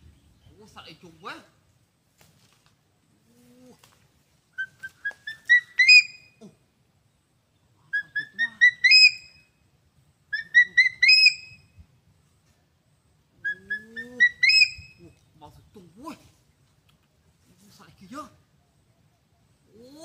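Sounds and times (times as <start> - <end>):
bird whistled call: 4.5 - 6.4, 7.9 - 9.6, 10.3 - 11.8, 13.4 - 15.0.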